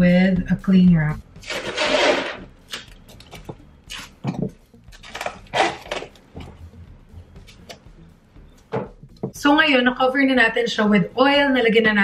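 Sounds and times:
cling wrap crinkling: 4.9 - 6.3.

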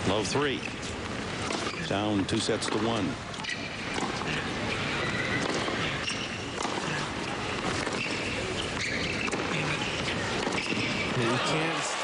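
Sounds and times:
stadium crowd hum: 0.0 - 12.0
racquet hitting tennis ball: 2.5 - 4.5, 5.3 - 11.2
calls from crowd: 11.1 - 12.0.

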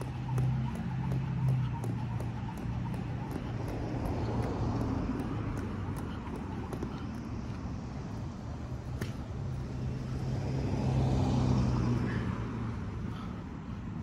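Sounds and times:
vehicle engine passing by: 9.0 - 12.9.

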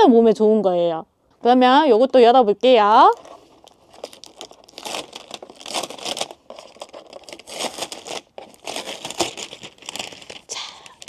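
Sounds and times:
plastic film crinkling and tearing: 3.1 - 11.0.

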